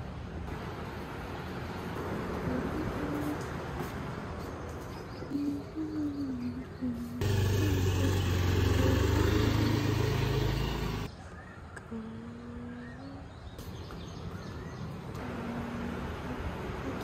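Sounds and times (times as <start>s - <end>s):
motor scooter riding past: 7.2s - 11.1s.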